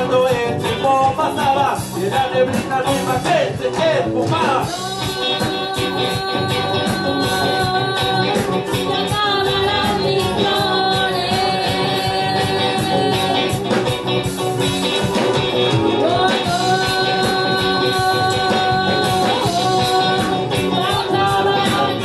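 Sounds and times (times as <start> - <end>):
drums: 0.0 - 22.0
electric guitar: 0.0 - 22.0
woman singing into a microphone: 4.7 - 13.9, 15.9 - 22.0.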